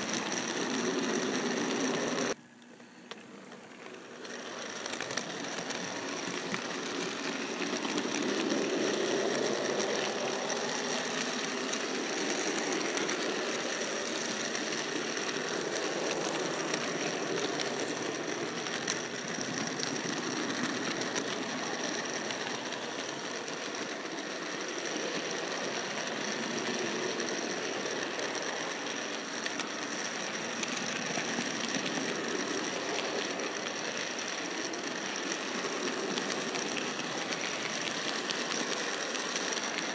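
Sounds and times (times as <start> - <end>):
model train motor whirring: 0.0 - 39.9
wheels clicking on rails: 0.0 - 39.9.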